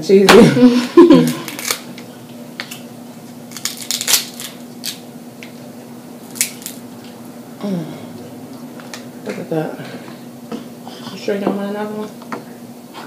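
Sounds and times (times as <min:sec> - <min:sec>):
crab shells cracking: 0:01.3 - 0:05.6, 0:06.3 - 0:06.8.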